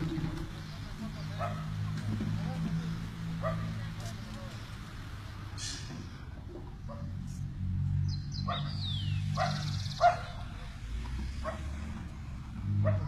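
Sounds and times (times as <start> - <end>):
dog barking: 1.4 - 1.7, 3.4 - 3.8, 6.9 - 7.1, 8.5 - 8.8, 9.4 - 10.5, 11.4 - 11.8, 12.8 - 13.0.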